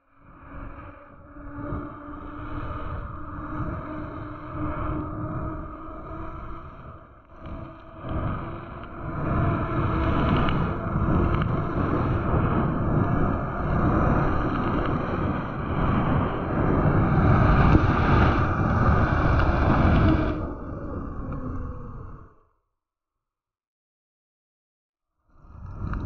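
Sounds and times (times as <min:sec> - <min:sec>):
bike tyre rumble on asphalt: 0:01.3 - 0:22.0
wind buffeting microphone: 0:01.3 - 0:22.4.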